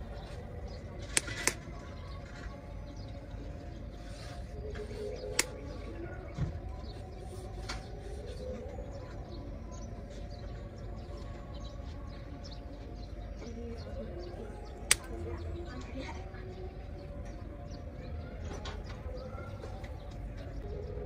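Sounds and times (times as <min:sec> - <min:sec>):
birds chirping: 0:00.0 - 0:21.0
distant murmur of voices: 0:00.0 - 0:21.0
click on wire grill: 0:01.0 - 0:01.6, 0:14.9 - 0:15.2.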